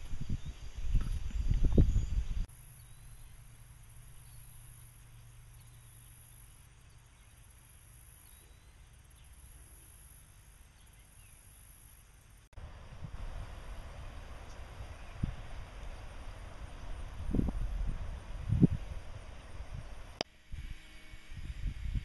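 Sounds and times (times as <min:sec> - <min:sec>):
low steady rumble: 0:00.0 - 0:22.0
high insect drone: 0:01.7 - 0:22.0.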